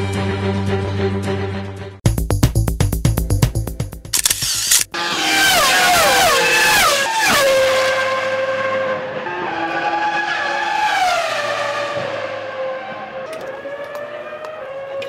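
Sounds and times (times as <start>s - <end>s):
racing car engine downshifting: 4.7s - 15.0s.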